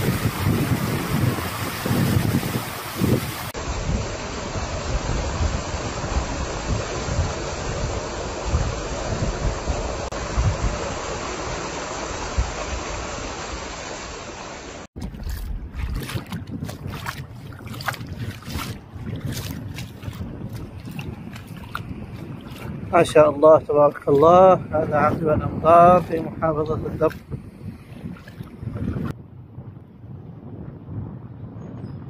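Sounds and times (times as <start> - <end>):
wind on microphone: 0.0 - 13.8, 14.9 - 32.0
tyre spraying through floodwater: 0.0 - 27.3.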